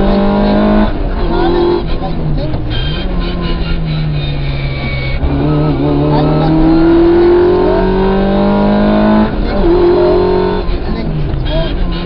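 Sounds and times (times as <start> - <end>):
rally car engine accelerating: 0.0 - 12.0.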